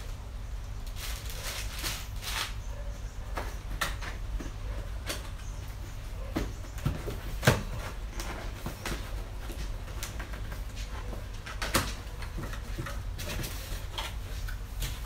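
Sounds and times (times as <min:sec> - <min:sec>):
cardboard scraping and rustling: 0:06.2 - 0:15.0.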